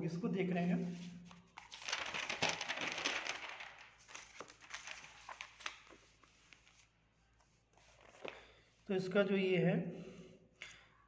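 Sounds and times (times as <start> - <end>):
paper sheets rustling: 0.8 - 8.6.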